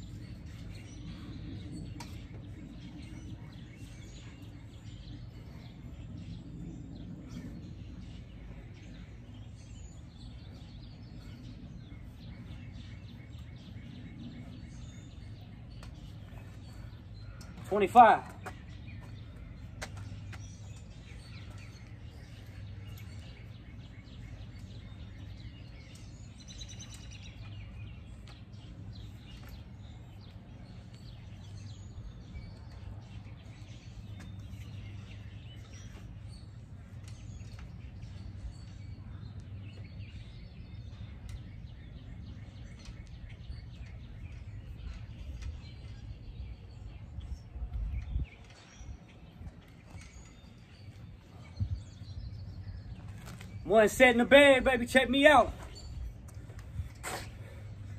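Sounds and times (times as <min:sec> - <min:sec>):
steady low hum: 0:00.0 - 0:17.7
birds chirping: 0:00.0 - 0:57.9.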